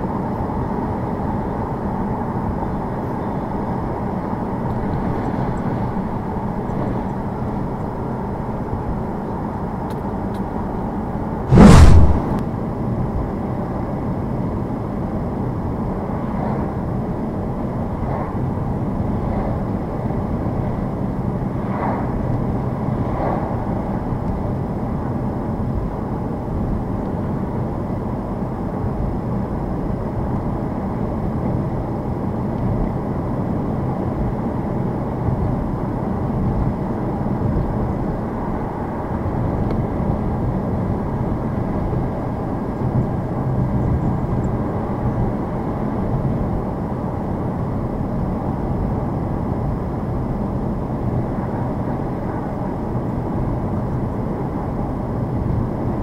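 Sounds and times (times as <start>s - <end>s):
car tyre noise on snowy road: 0.0s - 12.4s
loud thump: 11.5s - 12.4s.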